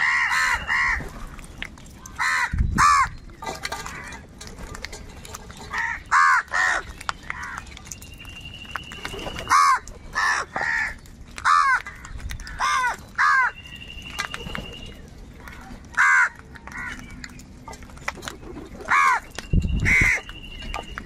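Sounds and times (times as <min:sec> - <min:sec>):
crows cawing: 0:00.0 - 0:01.0, 0:02.2 - 0:03.1, 0:05.7 - 0:07.6, 0:09.5 - 0:13.6, 0:15.5 - 0:17.0, 0:18.9 - 0:19.3, 0:19.9 - 0:20.3.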